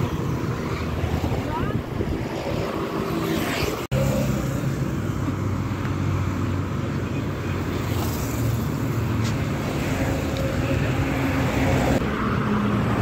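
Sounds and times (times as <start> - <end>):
wind noise: 0.0 - 3.9
motorcycles and cars passing: 0.0 - 13.0.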